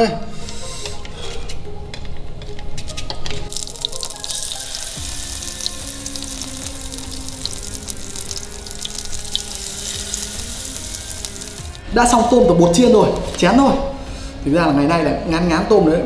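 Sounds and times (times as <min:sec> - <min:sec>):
faint background music: 0:00.0 - 0:16.0
shrimp sizzling in hot oil: 0:03.5 - 0:11.8.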